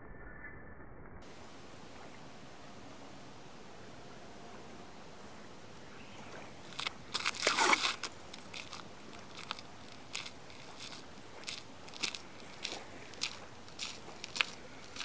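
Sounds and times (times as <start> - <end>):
footsteps crunching on gritty road: 6.1 - 15.0
crunching and scraping: 6.2 - 15.0.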